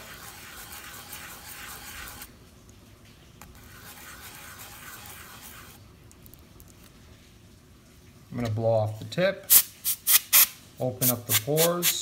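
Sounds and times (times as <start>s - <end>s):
sandpaper rubbing leather: 0.0s - 2.3s, 3.7s - 5.8s, 10.0s - 12.0s.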